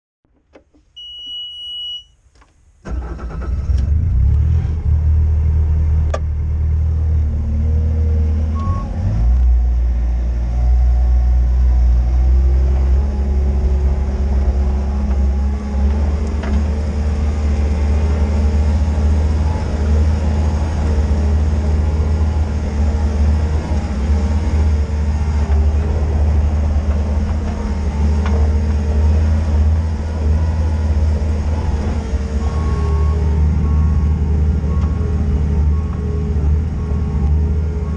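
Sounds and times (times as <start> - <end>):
electronic beep: 1.0 - 2.2
diesel engine starting and rumbling: 2.8 - 37.9.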